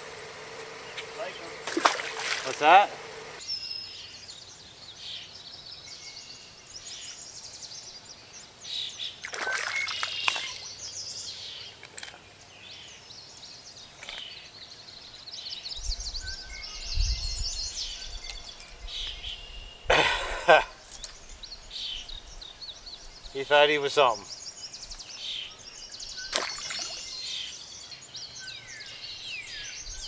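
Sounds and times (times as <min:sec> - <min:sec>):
songbirds chirping and trilling: 0:00.0 - 0:30.0.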